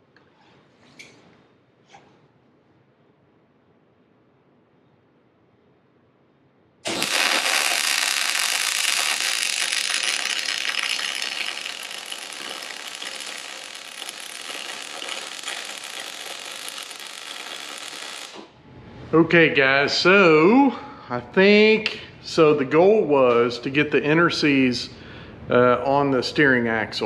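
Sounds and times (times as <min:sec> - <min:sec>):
arc welder crackling and hissing: 0:06.8 - 0:18.6.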